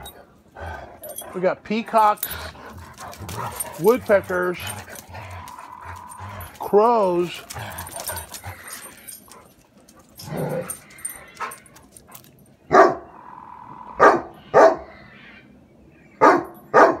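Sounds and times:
dog barking: 12.7s - 13.0s, 14.0s - 14.9s, 16.2s - 17.0s.

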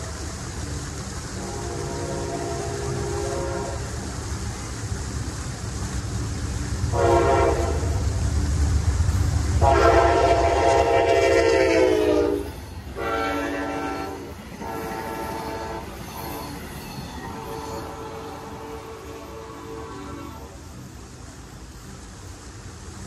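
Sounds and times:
low rumble of train: 0.0s - 23.0s
train horn blasts: 1.3s - 4.0s, 6.9s - 8.1s, 9.6s - 20.6s.

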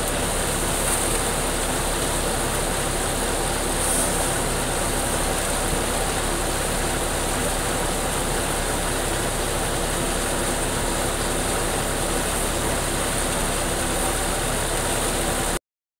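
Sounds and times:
tractor-driven thresher running: 0.0s - 15.6s.

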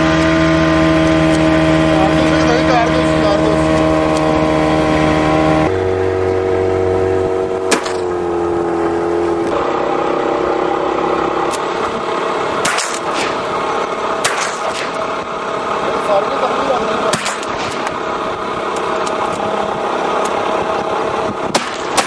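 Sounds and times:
speedboat motor running: 0.0s - 22.0s
shotgun shots: 7.7s - 8.1s, 12.6s - 13.5s, 14.2s - 15.1s, 17.1s - 18.0s, 21.5s - 22.0s.

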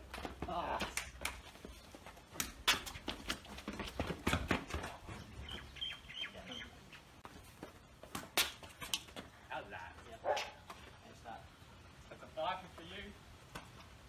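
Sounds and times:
footsteps: 0.0s - 5.7s, 7.0s - 11.0s
bird chirping: 5.1s - 7.2s.

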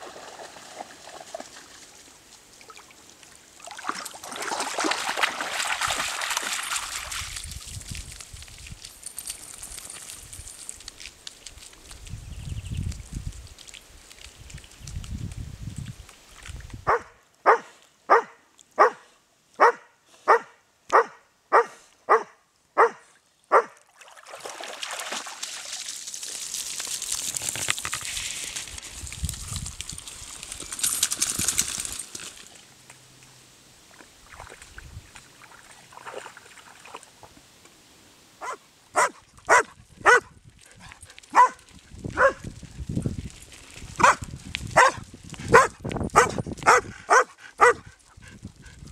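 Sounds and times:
dog barking: 16.9s - 23.8s, 38.4s - 40.3s, 41.3s - 41.6s, 42.2s - 42.4s, 44.0s - 44.2s, 44.8s - 47.8s.

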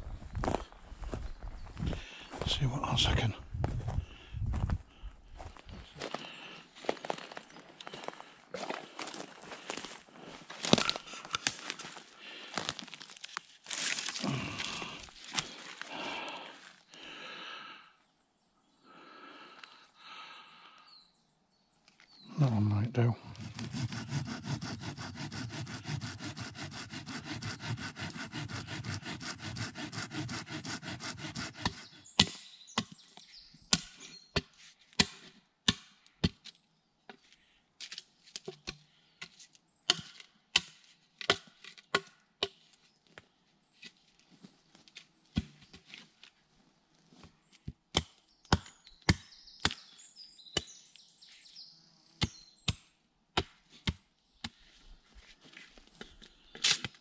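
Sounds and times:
hand saw cutting wood: 23.3s - 32.3s
hatchet striking wood: 23.6s - 33.0s, 33.7s - 36.4s, 39.9s - 42.6s, 47.9s - 49.9s, 52.2s - 54.6s.

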